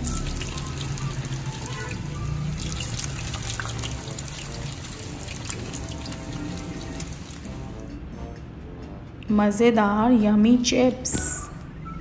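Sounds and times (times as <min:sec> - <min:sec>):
meat sizzling in hot oil: 0:00.0 - 0:07.8.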